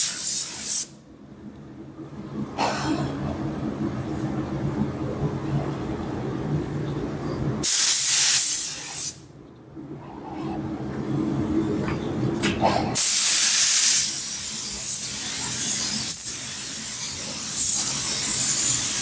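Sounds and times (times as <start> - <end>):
spray gun hissing: 0.0 - 1.0, 7.6 - 9.2, 13.0 - 19.0
low machine hum: 0.9 - 7.9, 9.2 - 19.0.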